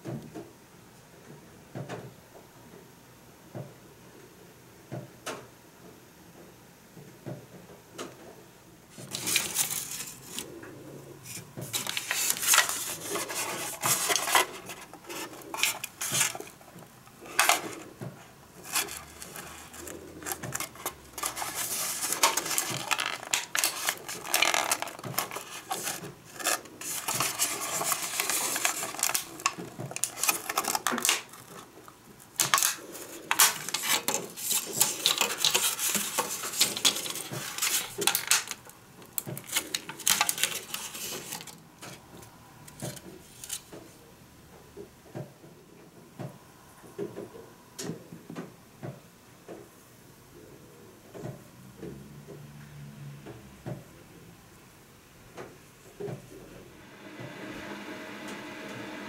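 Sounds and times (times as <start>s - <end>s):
plastic tray crackling and clicking: 9.0s - 10.5s, 11.3s - 43.8s.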